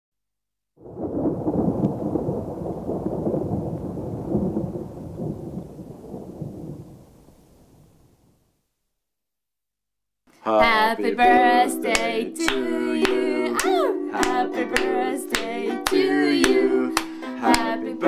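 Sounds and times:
rolling thunder: 0.8 - 8.4.

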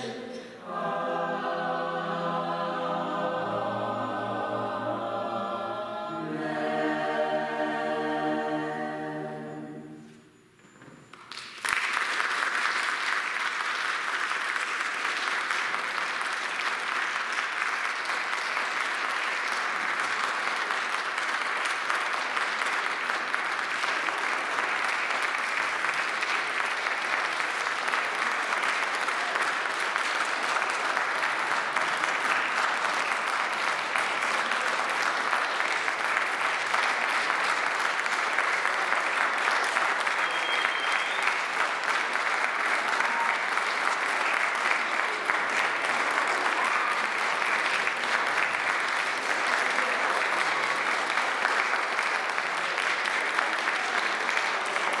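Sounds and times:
audience applauding: 11.1 - 55.0.

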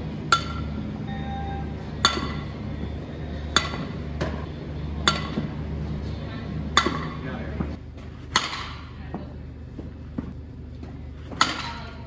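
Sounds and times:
steady low hum: 0.0 - 12.0
bat cracking softballs: 2.0 - 5.6, 6.7 - 9.0, 9.7 - 12.0.

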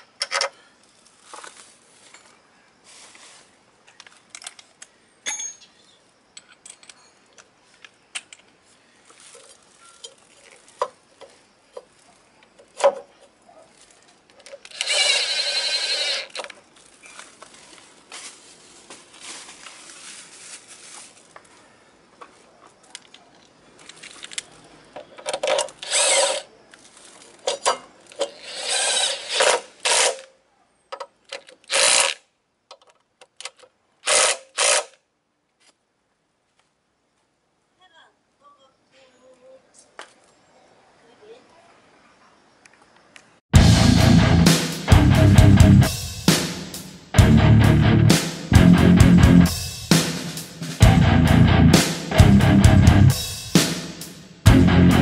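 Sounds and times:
power driver running: 14.7 - 16.3.

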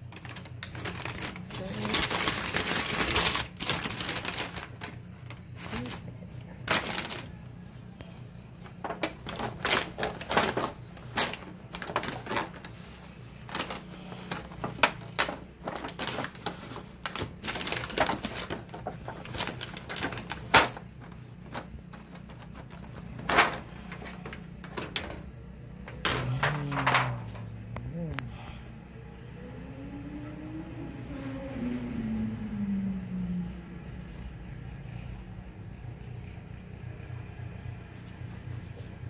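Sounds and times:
aluminium foil lid crinkling: 0.0 - 6.0, 6.6 - 7.4, 8.6 - 25.2, 26.0 - 27.5.

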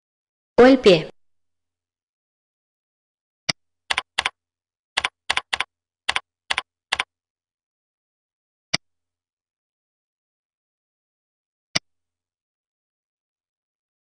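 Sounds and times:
computer keyboard typing: 3.9 - 4.4, 5.0 - 7.1.

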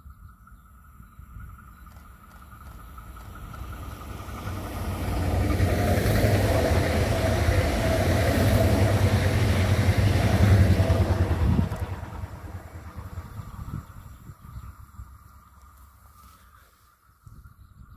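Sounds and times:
train whine: 0.8 - 14.2
train wheels rumbling on rails: 0.8 - 15.3.

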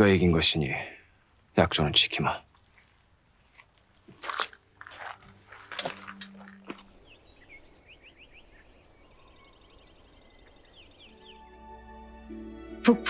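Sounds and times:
birds chirping: 0.0 - 12.3.

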